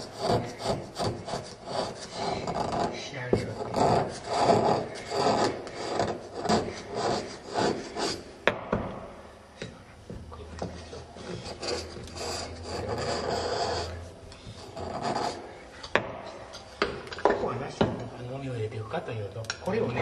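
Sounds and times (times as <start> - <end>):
chisel scraping slate: 0.0 - 8.3, 10.6 - 17.5.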